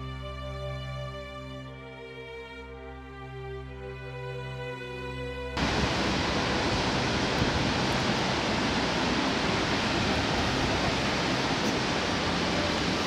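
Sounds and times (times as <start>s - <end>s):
background music: 0.0s - 5.6s, 8.4s - 13.0s
water rushing at a dam: 5.6s - 13.0s.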